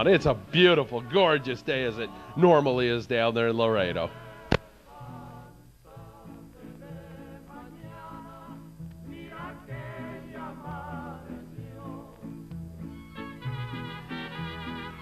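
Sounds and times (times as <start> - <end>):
background music melody with bass: 0.0 - 15.0.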